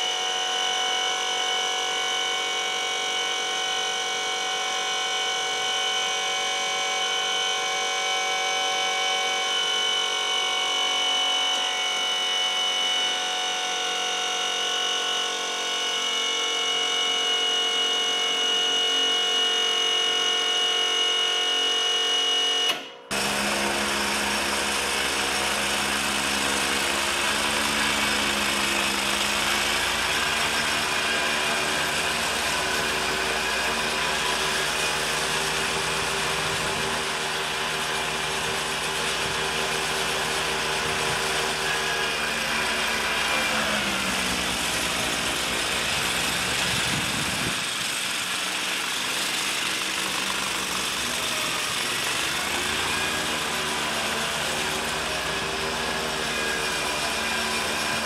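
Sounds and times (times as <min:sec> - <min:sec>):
high-pitched motor whine: 0:00.0 - 0:58.0
mower engine running: 0:22.7 - 0:58.0.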